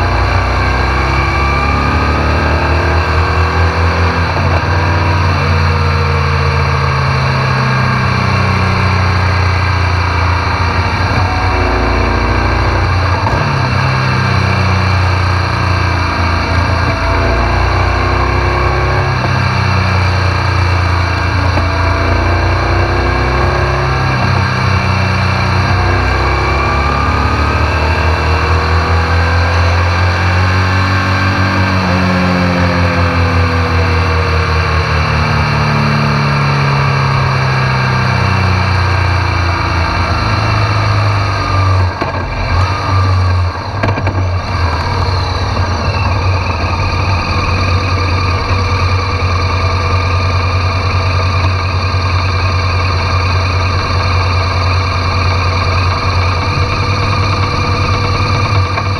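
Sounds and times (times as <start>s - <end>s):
motorcycle engine slowing to idle: 43.2s - 58.9s.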